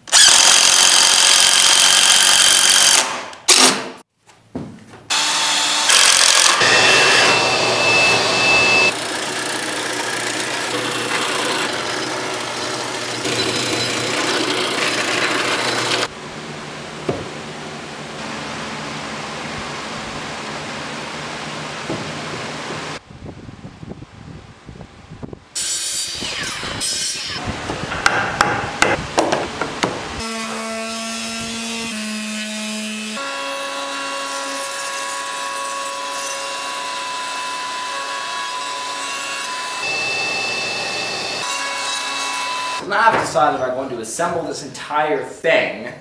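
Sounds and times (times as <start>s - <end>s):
router running: 0.1s - 3.1s, 5.1s - 16.1s, 39.4s - 42.8s
electric palm sander: 5.1s - 16.1s
fan noise: 14.8s - 25.6s
wood knocking on wood: 17.0s - 17.3s, 21.9s - 22.9s, 27.9s - 30.0s.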